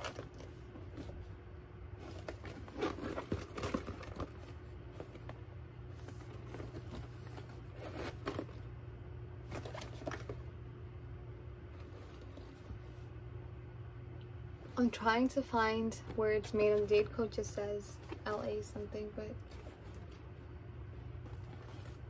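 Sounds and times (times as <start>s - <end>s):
steady low hum: 0.0s - 22.0s
handbag rustling: 2.0s - 4.4s.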